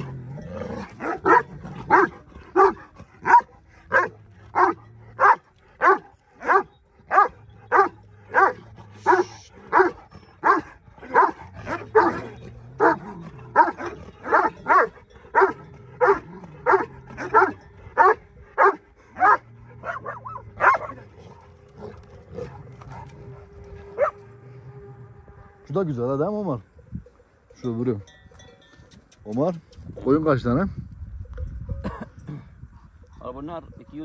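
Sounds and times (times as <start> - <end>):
dog barking: 1.0 - 12.2, 13.6 - 21.0, 24.0 - 24.2.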